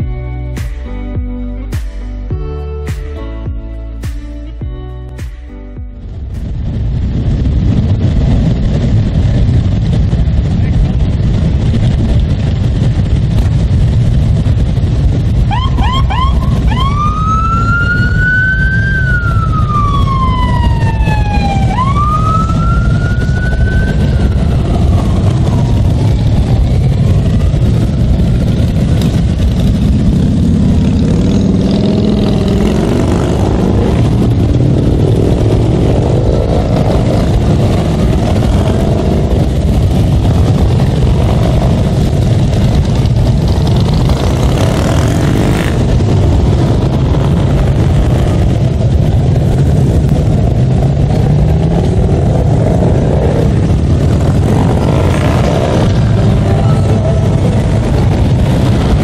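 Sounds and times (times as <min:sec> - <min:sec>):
motorcycle engines rumbling: 0:00.0 - 0:59.0
siren chirps and wails: 0:15.4 - 0:27.8.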